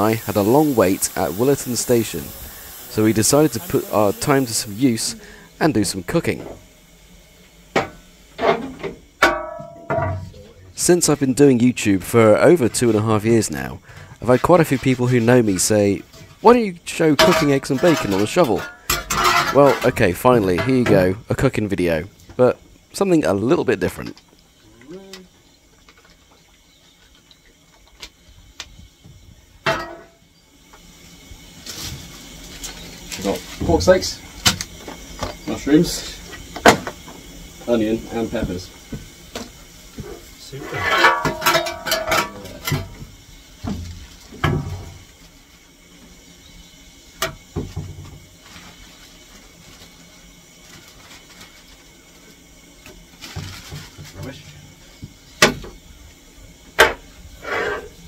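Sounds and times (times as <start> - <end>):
shovel clanking on metal: 17.2 - 20.0, 40.6 - 42.8.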